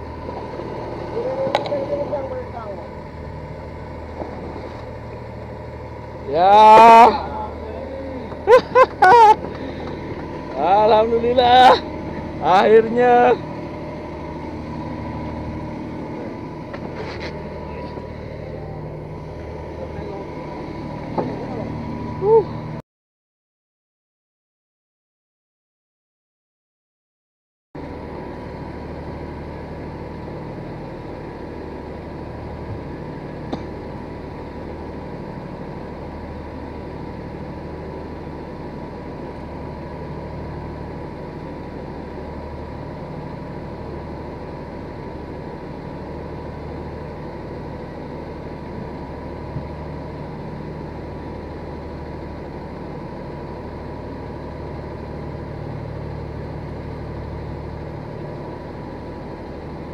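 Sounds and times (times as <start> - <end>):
motor drone with low hum: 0.0 - 22.8, 27.8 - 59.9.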